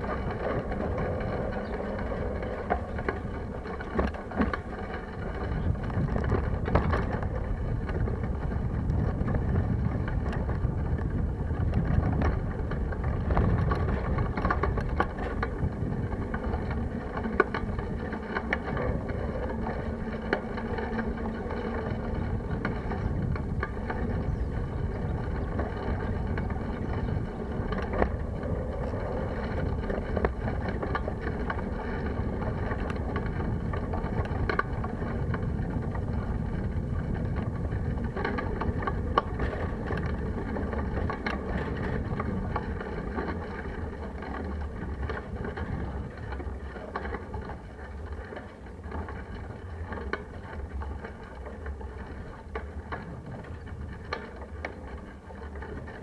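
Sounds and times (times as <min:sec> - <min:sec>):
wind rushing over microphone: 0:00.0 - 0:47.5.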